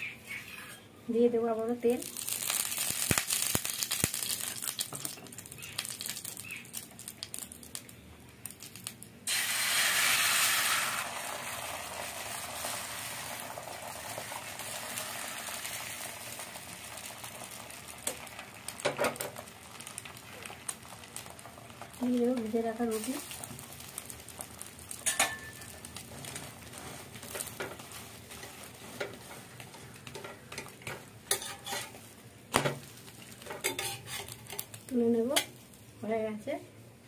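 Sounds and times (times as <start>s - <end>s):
spoon scraping hot pan: 0.2s - 0.9s, 22.9s - 32.1s, 33.1s - 35.6s
egg sizzling in hot oil: 1.8s - 36.0s.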